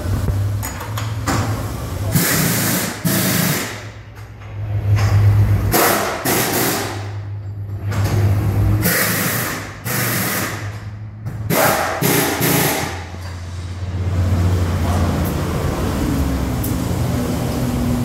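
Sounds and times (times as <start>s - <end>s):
pneumatic wheel guns rattling: 0.6s - 13.6s
air hissing: 8.8s - 10.7s.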